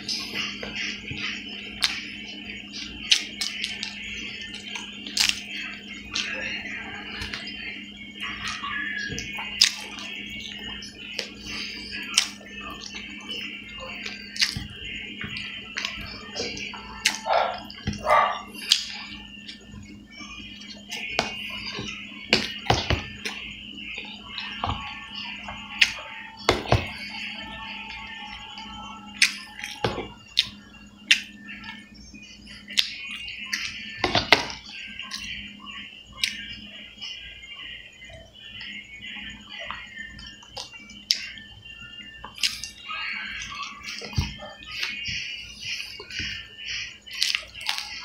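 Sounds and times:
steady low hum: 0.0 - 48.0
wet chewing and lip smacks: 18.6 - 19.6, 29.2 - 31.3, 42.2 - 42.8, 47.1 - 47.9.

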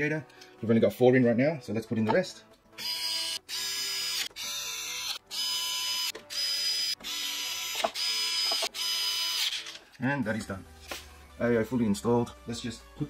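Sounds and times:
electric screwdriver motor whining: 2.8 - 9.8.

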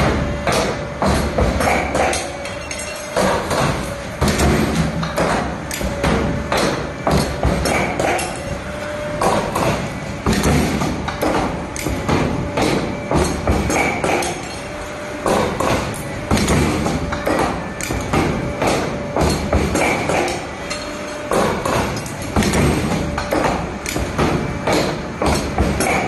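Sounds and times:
wire-forming machine clunking: 9.2 - 26.0.

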